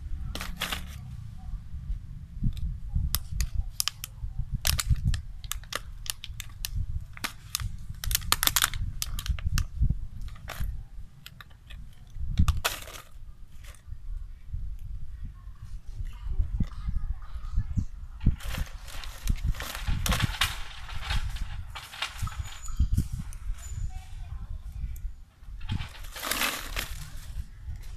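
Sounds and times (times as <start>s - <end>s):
plastic bottle crackling: 0.3s - 1.0s, 3.2s - 13.8s, 18.3s - 22.6s, 25.6s - 27.4s.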